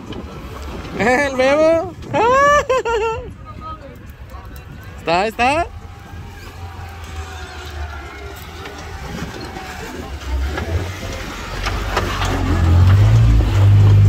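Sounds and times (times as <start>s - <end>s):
off-road vehicle engine running: 4.0s - 14.0s.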